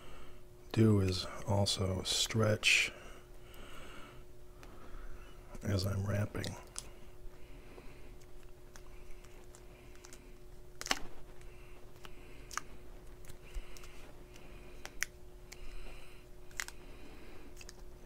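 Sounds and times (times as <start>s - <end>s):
faint steady hum: 0.0s - 18.0s
tape peeling and crinkling: 8.3s - 15.6s.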